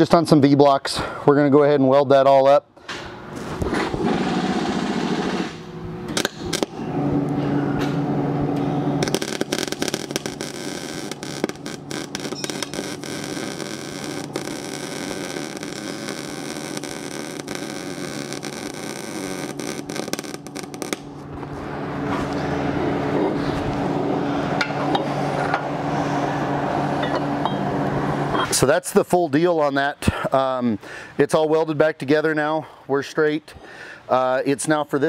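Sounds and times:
welding arc crackling: 3.9 - 6.8, 9.0 - 21.2.

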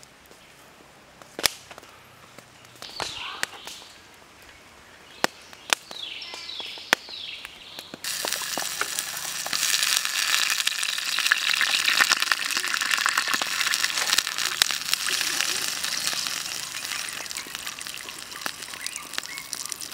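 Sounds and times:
liquid sizzling in frying pan: 8.0 - 19.9.

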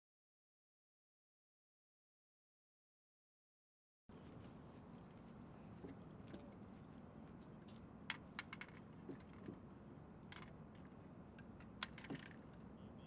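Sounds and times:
faint steady background noise: 4.1 - 13.0.

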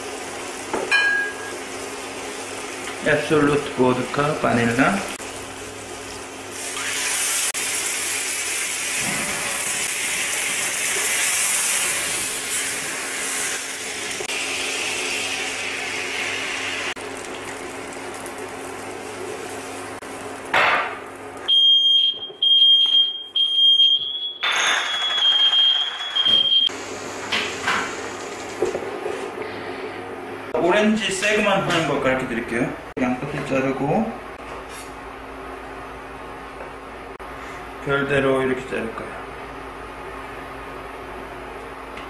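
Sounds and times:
caramel sizzling in a frying pan: 6.1 - 20.5
smoke alarm beeping: 21.5 - 26.7.

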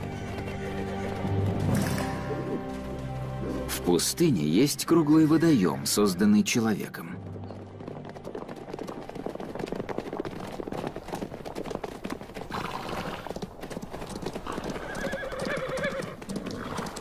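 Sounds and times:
horses whinnying: 0.0 - 2.8, 12.4 - 13.5, 14.4 - 17.0
hoofbeats on stony ground: 0.0 - 5.7, 6.6 - 17.0.

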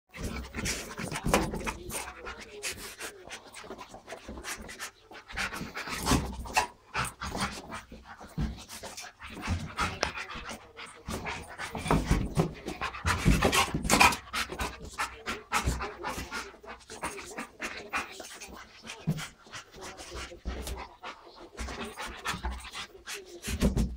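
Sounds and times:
dog panting: 0.1 - 23.9.

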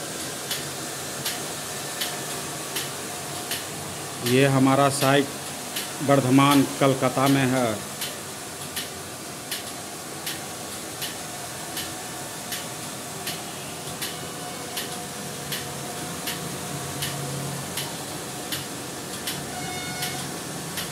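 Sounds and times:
sharp repeating tick: 9.5 - 10.4, 12.5 - 13.4, 14.8 - 16.4, 17.0 - 17.2, 18.5 - 19.4.

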